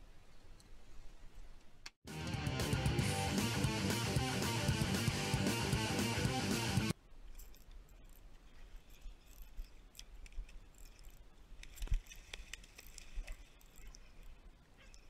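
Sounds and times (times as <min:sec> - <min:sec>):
guitar music: 0:02.1 - 0:06.9.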